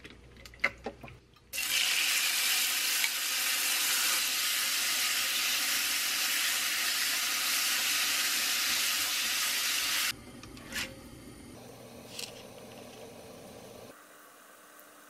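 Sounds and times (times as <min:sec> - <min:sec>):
meat sizzling in a pan: 0:01.6 - 0:10.1.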